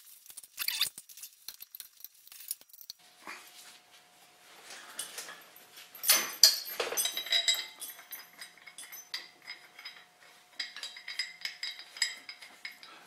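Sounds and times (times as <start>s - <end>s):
metal chain clinking: 4.6s - 13.0s.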